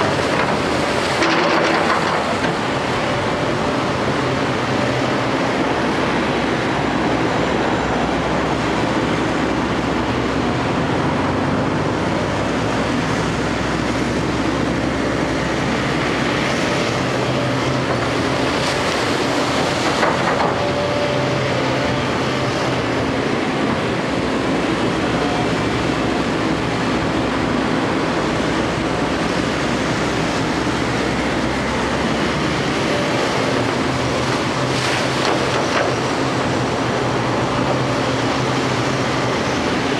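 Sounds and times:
excavator diesel engine running: 0:00.0 - 0:39.9
wet mud and water splashing: 0:12.9 - 0:22.9, 0:28.8 - 0:39.9.

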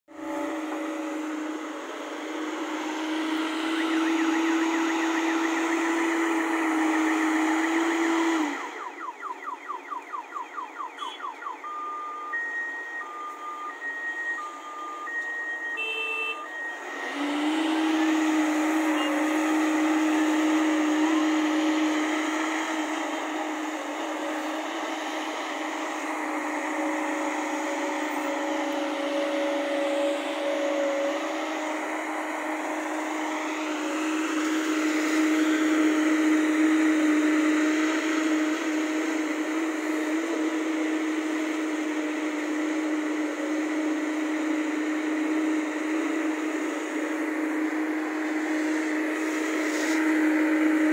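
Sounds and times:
excavator engine running: 0:00.1 - 0:50.9
two-tone beeping alarm: 0:02.3 - 0:33.2.

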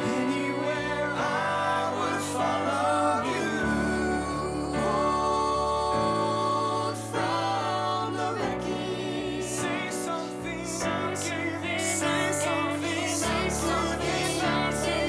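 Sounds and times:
singers holding notes with vibrato: 0:00.0 - 0:15.0.

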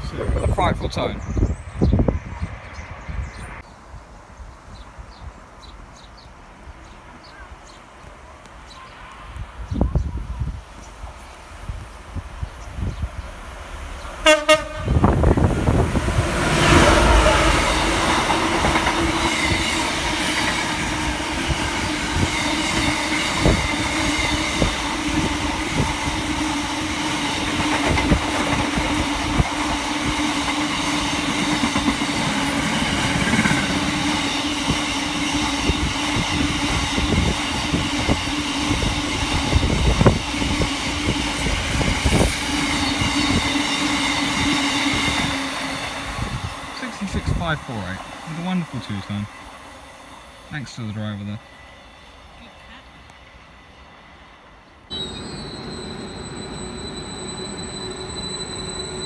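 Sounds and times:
train rumble: 0:09.7 - 0:53.9
two-tone train horn: 0:14.2 - 0:15.3, 0:54.9 - 0:58.6.

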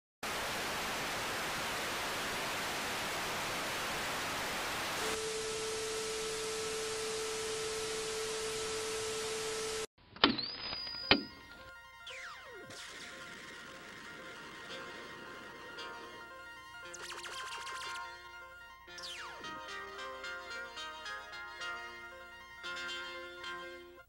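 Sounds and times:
tv static hiss: 0:00.2 - 0:09.9, 0:12.7 - 0:18.2.

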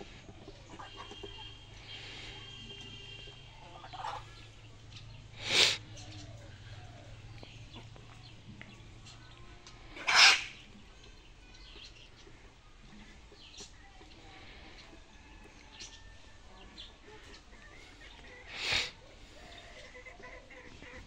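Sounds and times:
faint chicken calls: 0:00.0 - 0:21.0
harsh chicken cries: 0:10.0 - 0:10.6.

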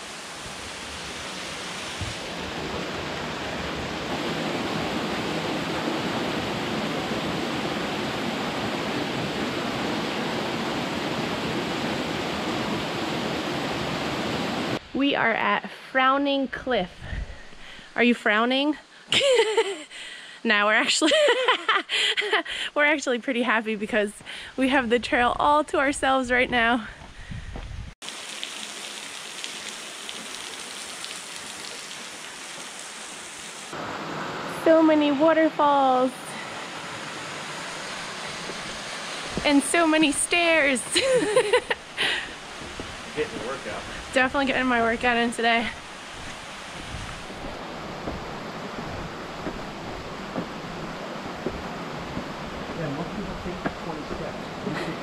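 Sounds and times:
waterfall rushing: 0:00.0 - 0:14.8, 0:28.0 - 0:55.0.

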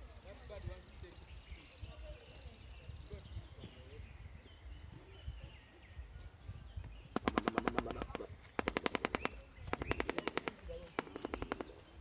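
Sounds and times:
bird clattering its bill: 0:06.8 - 0:12.0.

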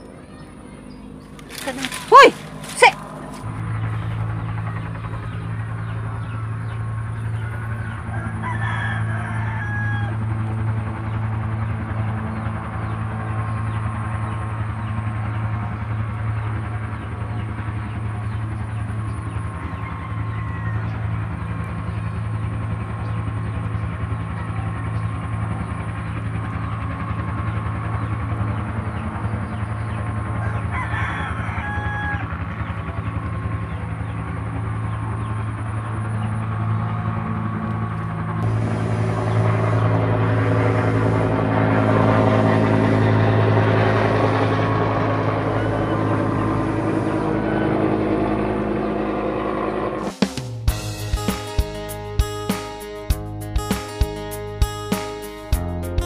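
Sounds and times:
steady low hum: 0:00.0 - 0:52.4
rooster crowing: 0:07.4 - 0:10.3, 0:19.5 - 0:21.2, 0:30.4 - 0:32.6.

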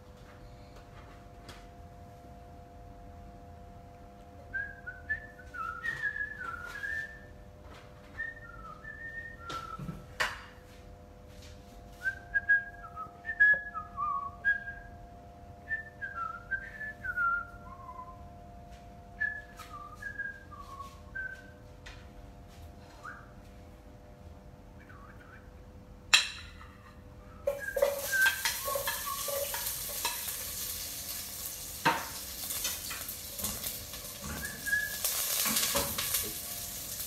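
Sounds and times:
faint steady hum: 0:00.0 - 0:37.0
person whistling a tune: 0:04.5 - 0:07.3, 0:08.2 - 0:10.1, 0:12.0 - 0:15.0, 0:15.7 - 0:18.2, 0:19.2 - 0:21.6, 0:22.9 - 0:23.4, 0:24.8 - 0:25.5, 0:27.3 - 0:29.4, 0:34.3 - 0:35.2
kitchenware clinking: 0:26.1 - 0:31.2, 0:31.8 - 0:36.4.

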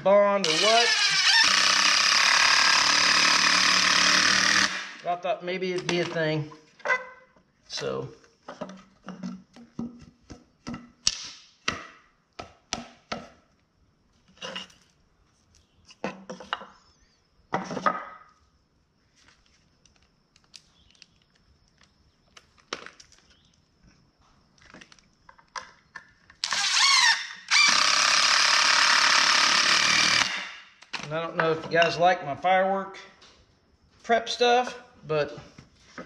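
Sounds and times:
cordless drill whining: 0:00.4 - 0:05.0, 0:26.4 - 0:30.6.

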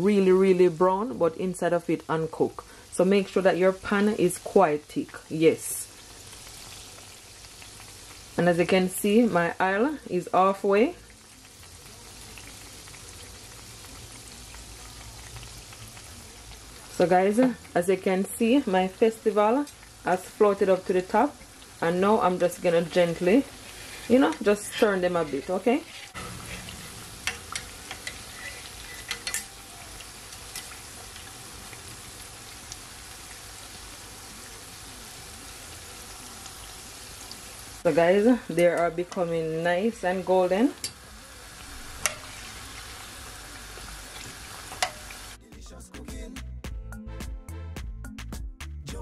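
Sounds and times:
dumplings deep-frying in oil: 0:00.0 - 0:45.4
spatula clicking against pot: 0:44.7 - 0:45.0.

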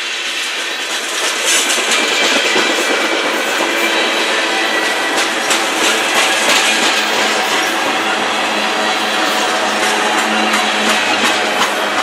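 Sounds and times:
train wheels rattling on rail: 0:00.0 - 0:12.0
wheels clicking over rail joints: 0:04.8 - 0:12.0.

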